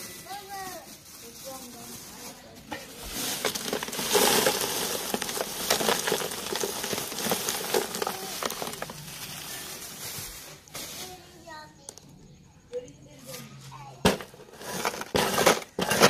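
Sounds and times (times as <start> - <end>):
rock salt rattling onto ice: 0.0 - 10.7, 14.1 - 16.0
plastic bag crinkling: 0.0 - 11.3.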